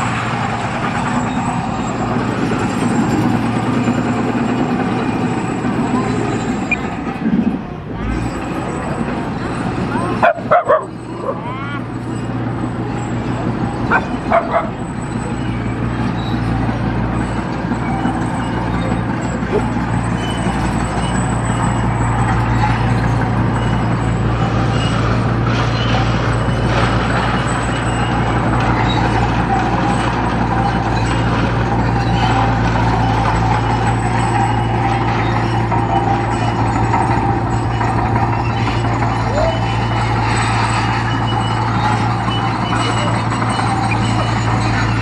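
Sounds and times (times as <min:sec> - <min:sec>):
bulldozer diesel engine running: 0:00.0 - 0:45.0
dog yipping: 0:10.1 - 0:11.5, 0:13.9 - 0:14.8.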